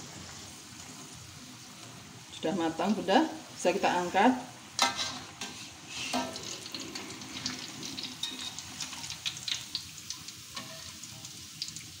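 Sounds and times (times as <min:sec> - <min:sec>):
oil sizzling in a wok: 0:00.0 - 0:12.0
metal spatulas scraping a wok: 0:04.8 - 0:06.4, 0:10.6 - 0:11.0.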